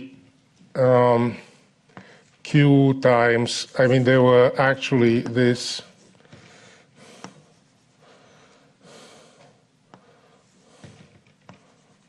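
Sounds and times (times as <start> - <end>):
man breathing: 1.6 - 2.4, 6.2 - 11.2
chalk scratching on blackboard: 7.2 - 8.3, 11.5 - 12.0
chalk tapping: 10.8 - 12.0.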